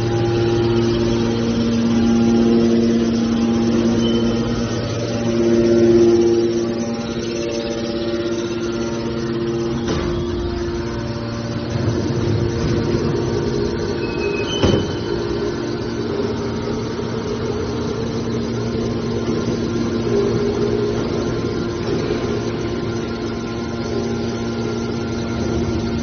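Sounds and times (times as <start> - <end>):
high-pitched tones: 0.0 - 17.5
hydraulic pump motor humming: 0.0 - 26.0
metallic clunk: 9.8 - 10.8, 14.2 - 15.2.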